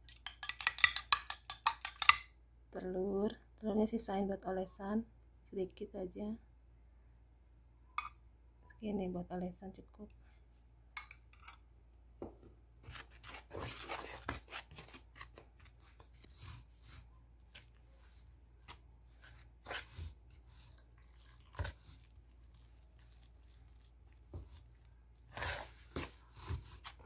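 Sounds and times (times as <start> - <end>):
spoon stirring in plastic bowl: 0.1 - 2.2, 12.8 - 27.0.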